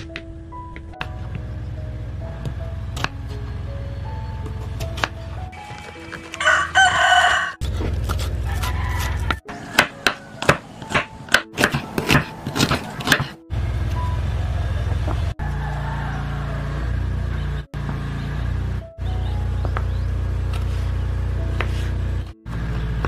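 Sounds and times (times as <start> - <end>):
rooster crowing: 6.4 - 7.6, 8.4 - 10.5, 15.4 - 17.0
knife chopping on wooden board: 7.6 - 13.4.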